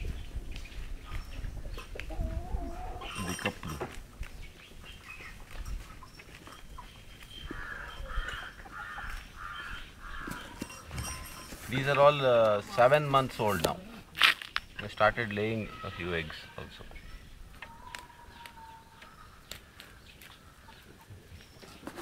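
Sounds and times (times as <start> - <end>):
chicken calls: 1.0 - 3.9, 5.3 - 11.6, 15.4 - 22.0
chickens pecking: 17.5 - 22.0.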